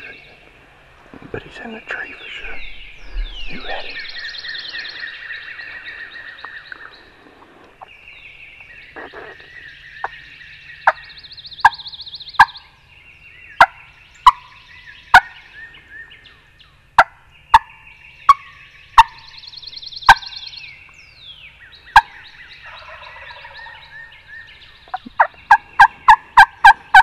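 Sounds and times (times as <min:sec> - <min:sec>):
songbirds trilling: 0:00.0 - 0:27.0
turkey call yelps: 0:21.9 - 0:24.2.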